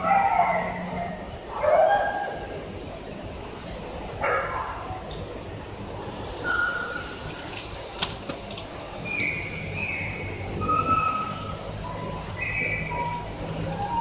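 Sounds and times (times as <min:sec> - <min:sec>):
dogs whining: 0:09.0 - 0:14.0.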